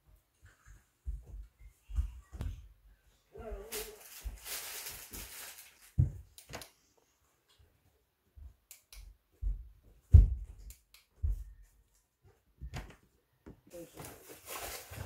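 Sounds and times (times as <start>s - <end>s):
plastic lantern rustling in hands: 3.5s - 6.7s, 13.7s - 15.0s.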